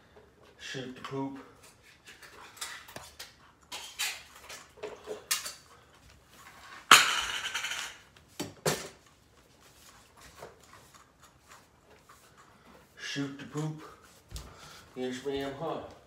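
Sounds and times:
food bowls and cans clinking: 0:02.1 - 0:05.7, 0:06.9 - 0:08.0.

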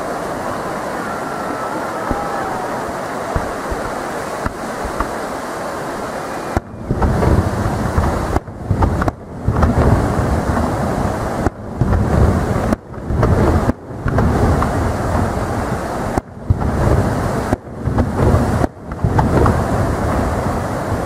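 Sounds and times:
steady background noise: 0:00.0 - 0:21.0
firework shells booming: 0:03.3 - 0:05.2, 0:06.5 - 0:21.0.

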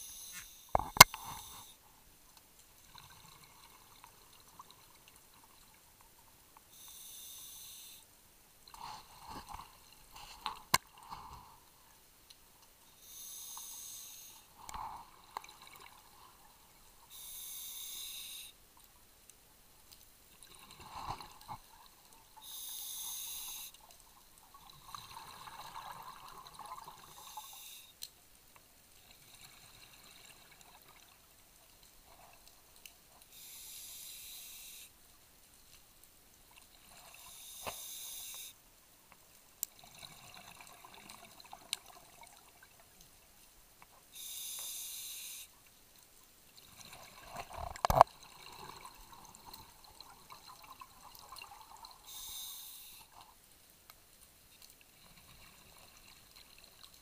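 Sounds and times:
hissing regulator inhalations: 0:00.0 - 0:01.8, 0:06.7 - 0:08.1, 0:13.0 - 0:14.9, 0:17.1 - 0:18.6, 0:22.4 - 0:23.8, 0:27.1 - 0:28.0, 0:33.3 - 0:34.9, 0:37.2 - 0:38.6, 0:44.2 - 0:45.5, 0:52.0 - 0:53.2.

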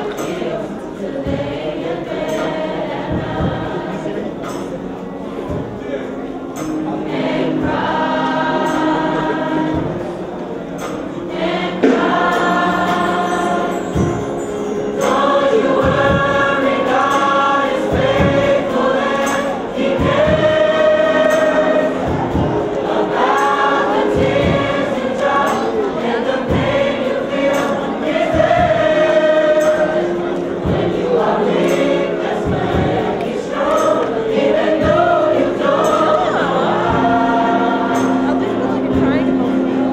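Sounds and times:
choir singing: 0:00.0 - 0:39.9
steady beat: 0:15.0 - 0:39.9.

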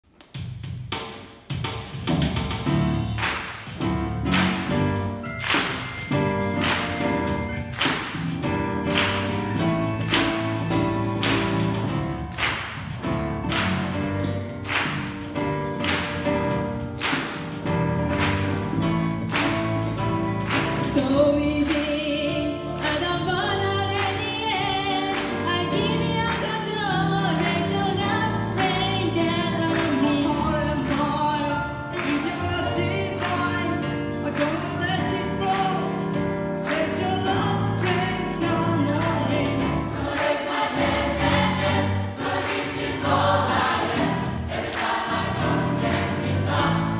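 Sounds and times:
band accompaniment with steady beat: 0:00.2 - 0:46.9
gospel choir singing: 0:19.5 - 0:34.0, 0:36.8 - 0:46.9.

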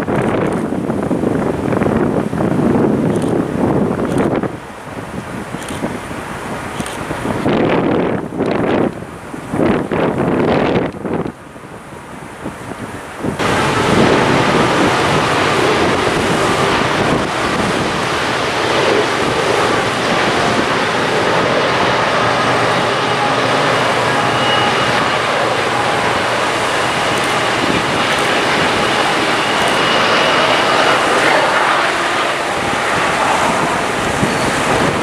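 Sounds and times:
wind roar on microphone: 0:00.0 - 0:35.0
diesel locomotives passing: 0:12.8 - 0:35.0.

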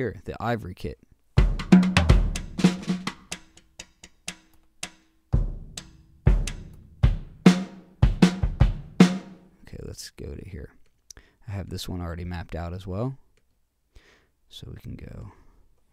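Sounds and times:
kick drum: 0:01.4 - 0:02.6, 0:05.4 - 0:09.1.

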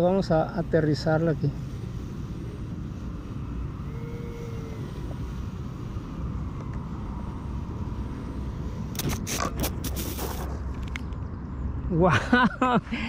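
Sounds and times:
rush of air over flying wing: 0:00.0 - 0:11.0
knocks and scrapes on grass: 0:08.8 - 0:11.2.

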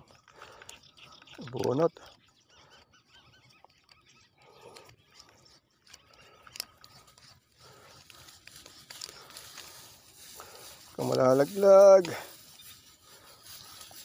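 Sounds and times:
small clicks: 0:00.1 - 0:10.0
soft handling rustling: 0:05.8 - 0:14.0.

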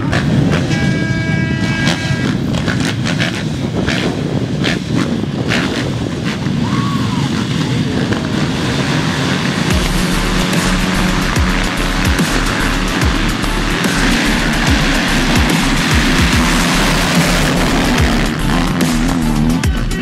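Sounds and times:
dirt bike engines: 0:00.0 - 0:20.0
music with low tones: 0:07.9 - 0:20.0.

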